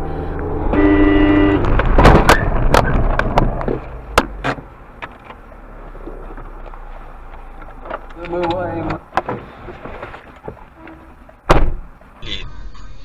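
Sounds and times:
road noise: 0:00.0 - 0:13.0
car horn: 0:00.6 - 0:01.7
loud car crash: 0:01.6 - 0:04.7.

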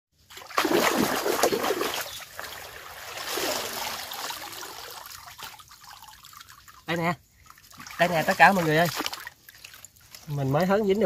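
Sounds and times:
water splashing and sloshing: 0:00.2 - 0:11.0.

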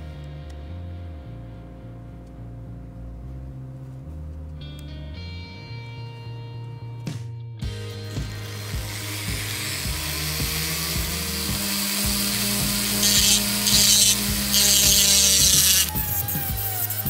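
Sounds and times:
rotary tool grinding metal: 0:07.9 - 0:17.0.

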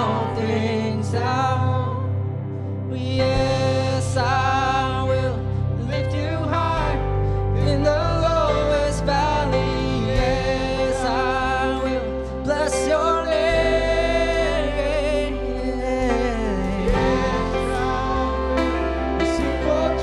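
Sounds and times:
keyboard and guitar: 0:00.0 - 0:20.0
low bass notes: 0:00.0 - 0:20.0.

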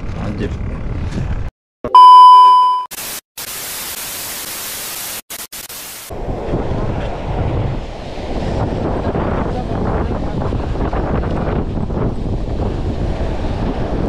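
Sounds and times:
wind buffeting microphone: 0:06.1 - 0:14.0.

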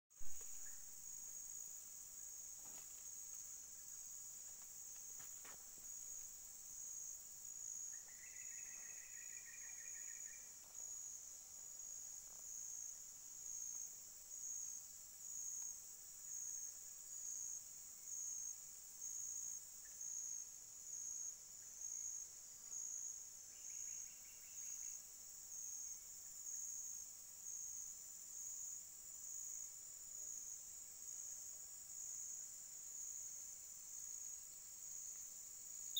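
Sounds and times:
insects buzzing: 0:00.2 - 0:17.5.

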